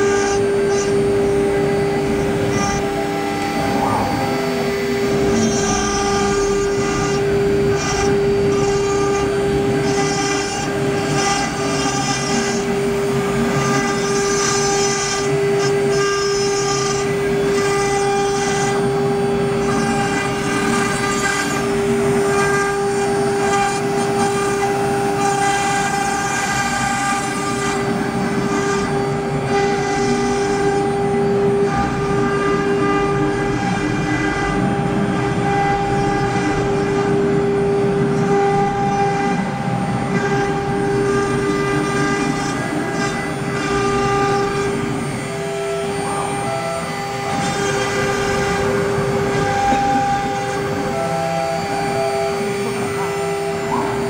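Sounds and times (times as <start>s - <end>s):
rushing machine noise: 0.0s - 54.0s
spindle motor whine: 0.0s - 54.0s.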